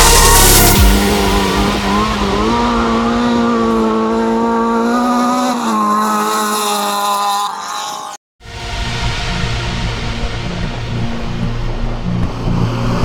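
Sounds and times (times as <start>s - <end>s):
racing buggy engine at high revs: 0.2s - 8.2s.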